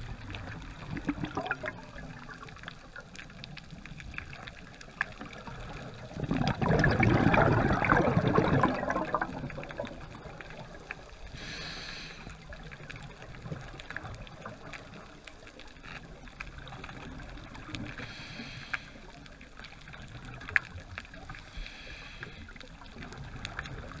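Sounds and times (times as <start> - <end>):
exhaled bubbles gushing: 0.0 - 11.3, 22.5 - 24.0
faint clicks and crackles: 0.0 - 24.0
hissing regulator inhalations: 11.3 - 12.4, 18.0 - 19.1, 21.5 - 22.6.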